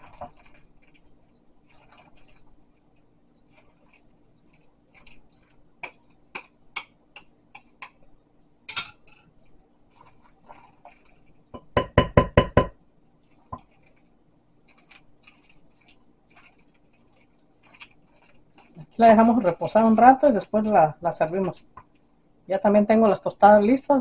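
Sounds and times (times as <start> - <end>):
spoon stirring pasta salad: 0.0 - 8.2, 8.8 - 11.8, 13.2 - 22.2
spoon knocking on bowl: 11.6 - 12.8.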